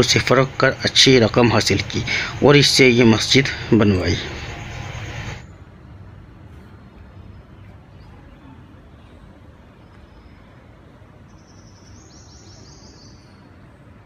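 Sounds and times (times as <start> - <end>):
distant road traffic rumble: 0.0 - 14.0
faint bird chirps: 6.5 - 13.6.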